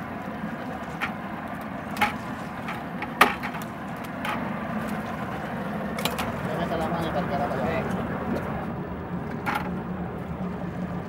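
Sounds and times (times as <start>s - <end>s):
steady low drone: 0.0s - 11.0s
metal pipe striking fish: 1.9s - 5.1s.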